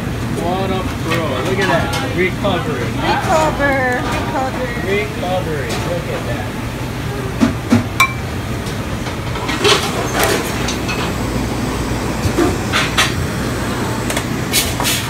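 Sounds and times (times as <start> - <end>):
kitchen torch hissing: 10.3 - 15.0.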